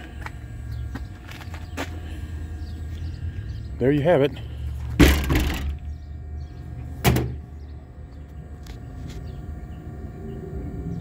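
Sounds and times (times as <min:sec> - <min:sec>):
steady low hum: 0:00.0 - 0:11.0
bus doors slamming: 0:05.0 - 0:05.8, 0:07.0 - 0:07.4
panel banging shut: 0:05.0 - 0:05.8, 0:07.0 - 0:07.4.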